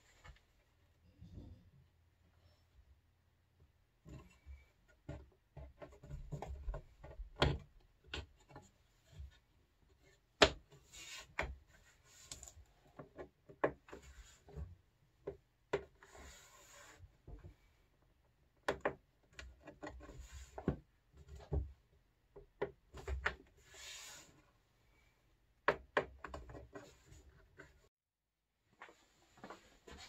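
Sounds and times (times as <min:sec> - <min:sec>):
rubbing and sliding: 0:15.9 - 0:17.6, 0:23.5 - 0:24.7.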